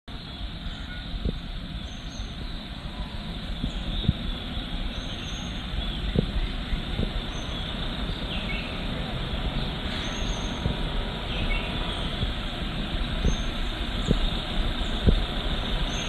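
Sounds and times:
faint high bird chirps: 0.1s - 8.8s
distant road traffic rumble: 0.1s - 16.0s
soft low thumps: 6.0s - 7.2s, 12.1s - 15.5s.

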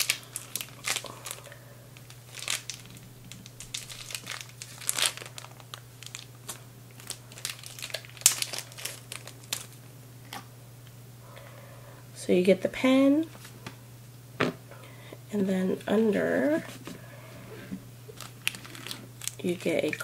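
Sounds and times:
plastic sleeve crinkling: 0.0s - 9.8s, 18.1s - 20.0s.

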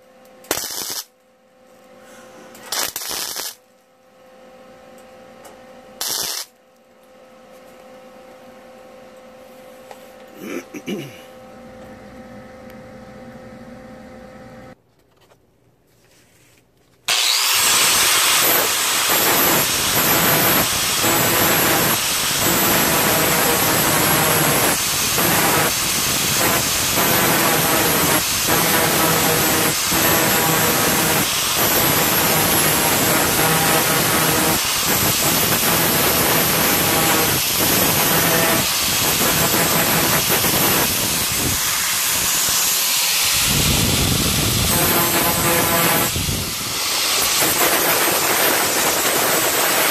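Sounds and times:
angle grinder grinding sheet metal: 17.1s - 49.9s.

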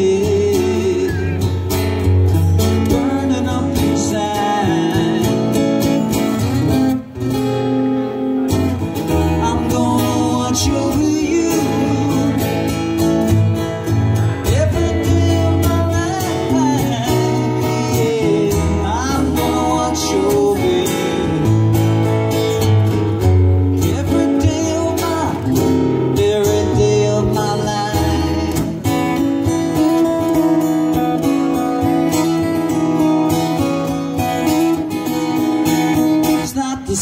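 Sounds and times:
man singing: 0.0s - 6.5s, 9.1s - 22.4s, 23.7s - 31.6s, 36.2s - 37.0s
acoustic guitars strummed: 0.0s - 37.0s.

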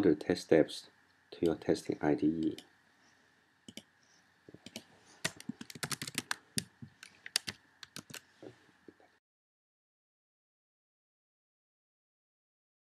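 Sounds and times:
keyboard and mouse clicks: 3.7s - 3.9s, 4.6s - 8.2s.

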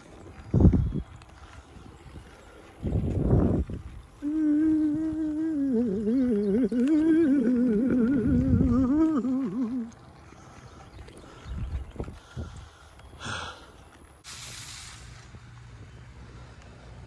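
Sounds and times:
person humming: 4.2s - 10.0s.

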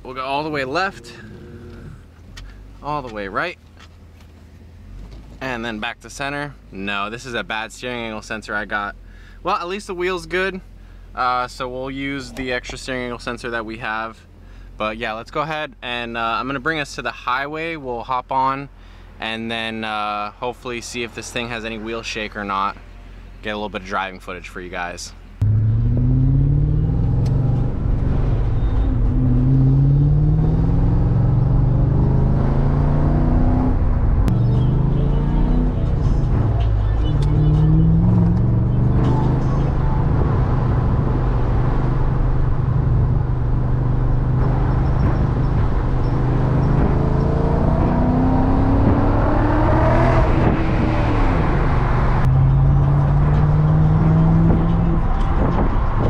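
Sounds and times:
car engine accelerating through gears: 0.6s - 2.6s, 25.4s - 56.0s.

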